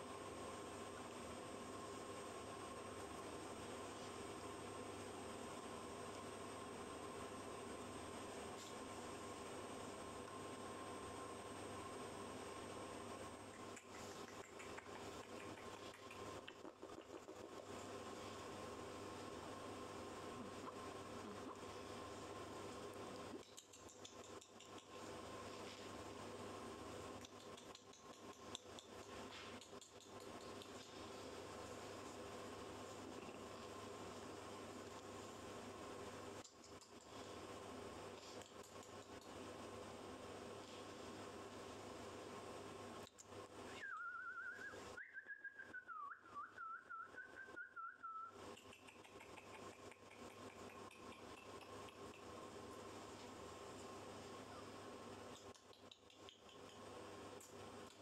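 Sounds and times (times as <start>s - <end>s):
faint hum: 0.0s - 58.0s
faint clicks: 13.4s - 17.4s, 48.6s - 52.3s
person whistling: 43.8s - 48.3s.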